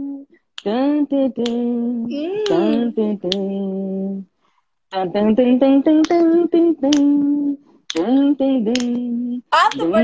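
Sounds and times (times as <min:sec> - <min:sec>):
second voice singing: 0:00.0 - 0:04.2, 0:04.9 - 0:10.0
woman singing wordless tune: 0:00.7 - 0:03.9, 0:05.0 - 0:10.0.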